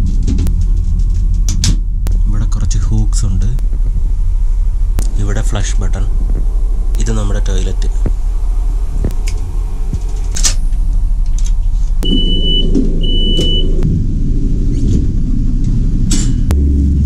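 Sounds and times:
rushing noise: 0.0s - 17.0s
train low rumble: 0.0s - 17.0s
high electronic beeps: 12.0s - 13.8s.

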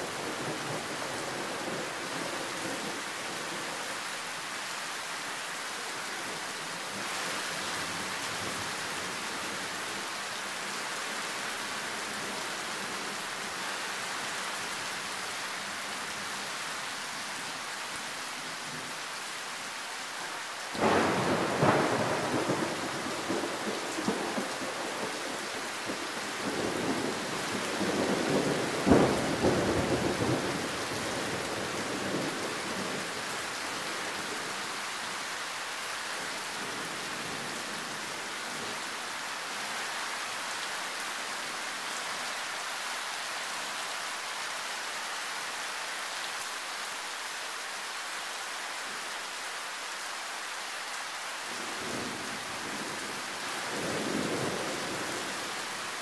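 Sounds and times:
heavy rain pouring: 0.0s - 56.0s.

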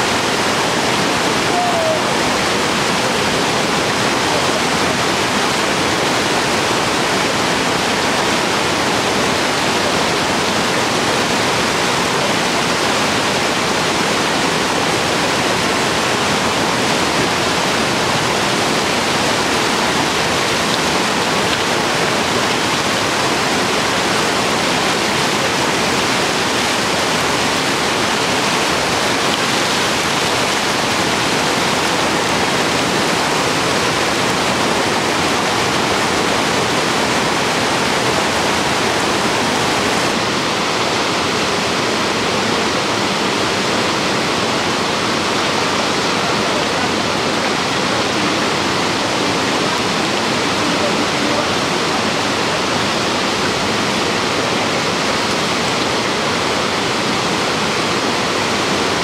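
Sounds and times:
whitewater rapids rushing: 0.0s - 59.0s.

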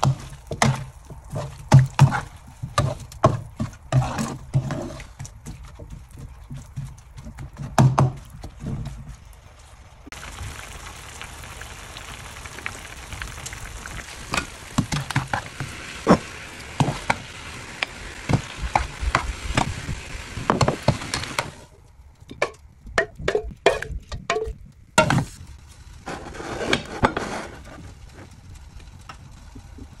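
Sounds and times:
vegetables sizzling in wok: 0.0s - 5.2s, 6.2s - 21.8s
spatula scraping pan: 0.0s - 5.8s, 26.0s - 28.3s.

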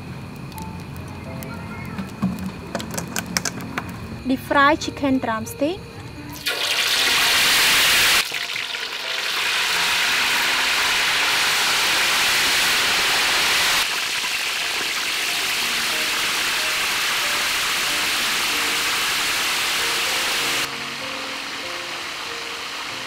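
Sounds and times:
chicken sizzling in hot oil: 6.3s - 23.0s.

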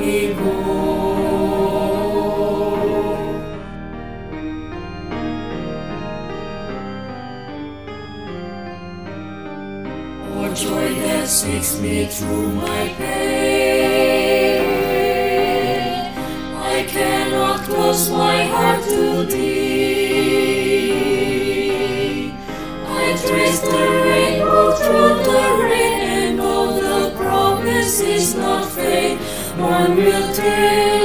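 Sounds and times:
mixed choir singing: 0.0s - 3.7s, 10.2s - 31.0s.

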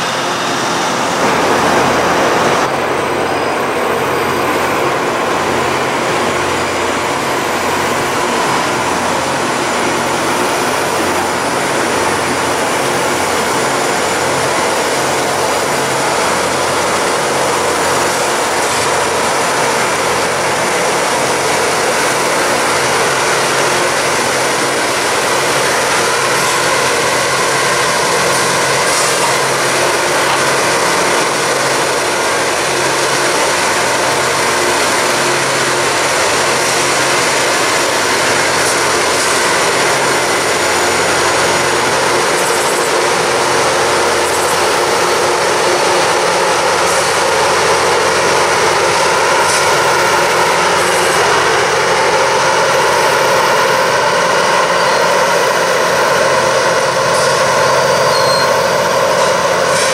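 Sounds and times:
diesel engine drone: 0.0s - 59.9s
rail grinding noise: 0.0s - 59.9s.

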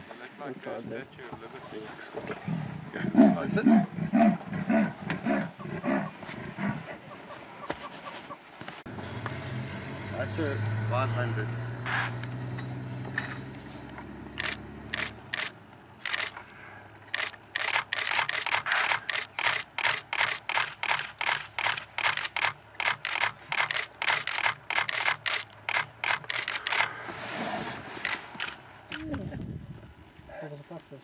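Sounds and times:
low engine hum: 8.9s - 18.5s
camera shutter firing: 14.4s - 16.4s, 17.1s - 26.9s.

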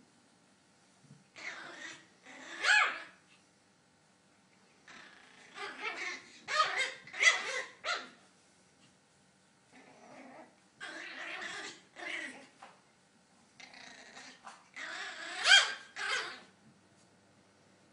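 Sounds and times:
puppy growling: 1.4s - 3.2s, 4.8s - 8.2s, 9.7s - 12.7s, 13.6s - 16.5s
puppy yapping: 1.4s - 3.2s, 5.0s - 8.2s, 14.2s - 16.5s.

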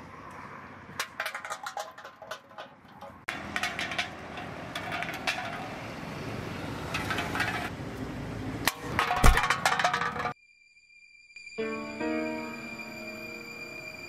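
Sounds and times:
empty can clattering on brick paving: 0.9s - 7.8s, 8.7s - 10.4s
steady outdoor hiss: 10.4s - 14.0s.

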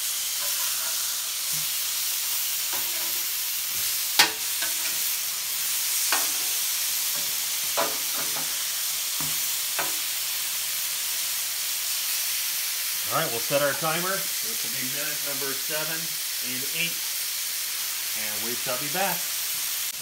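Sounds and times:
steaks sizzling on a griddle: 0.0s - 20.0s
metal spatula clacking and scraping: 0.4s - 1.6s, 2.7s - 5.1s, 6.0s - 8.5s.

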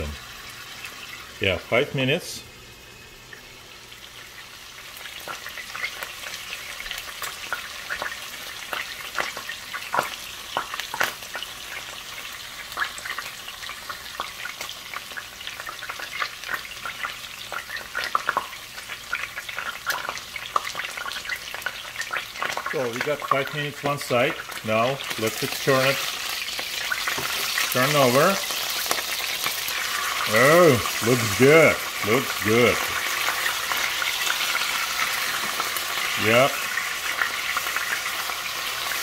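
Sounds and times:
steaks sizzling in a frying pan: 0.0s - 39.0s.

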